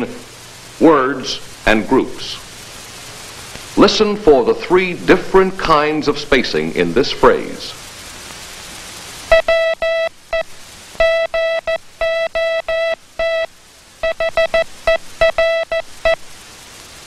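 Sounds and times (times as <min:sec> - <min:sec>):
morse code buzzing tone: 0:09.3 - 0:16.3.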